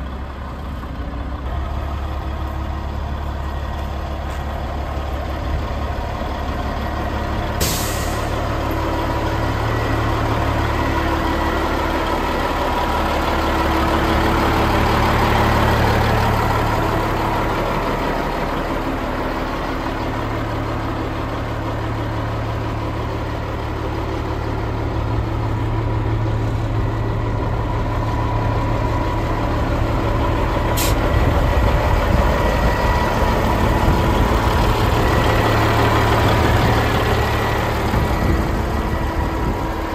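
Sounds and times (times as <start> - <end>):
diesel engine idling: 0.0 - 39.9
short sharp hisses: 30.8 - 31.0.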